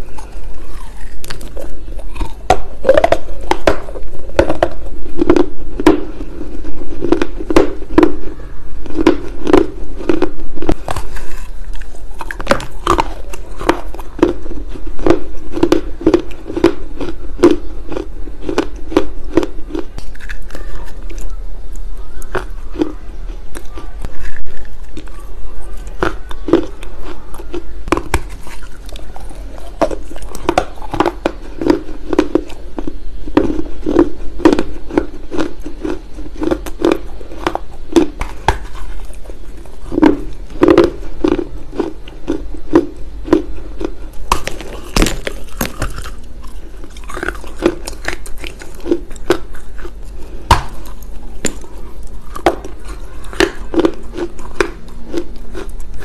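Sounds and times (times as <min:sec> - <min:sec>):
chewing clay: 0:00.0 - 0:56.0
gritty clay crunches: 0:25.9 - 0:56.0.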